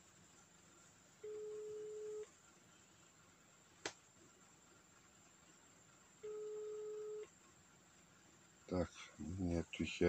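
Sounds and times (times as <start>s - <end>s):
telephone ringback beep: 6.2s - 7.2s.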